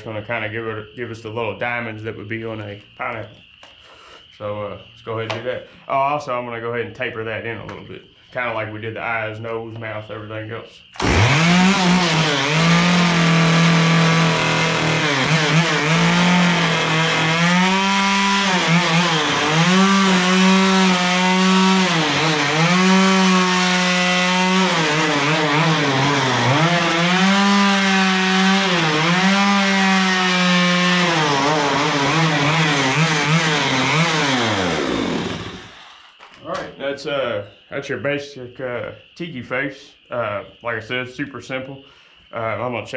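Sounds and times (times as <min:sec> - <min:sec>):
chainsaw cutting wood: 0:11.0 - 0:36.3.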